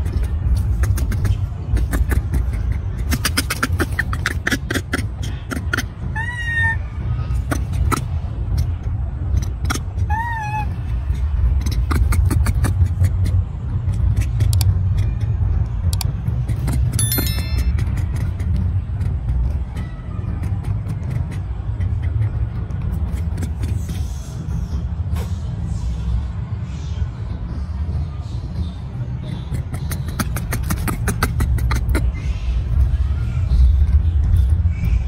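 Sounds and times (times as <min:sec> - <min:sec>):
monkey squeaking call: 0:03.9 - 0:06.9, 0:10.0 - 0:11.2.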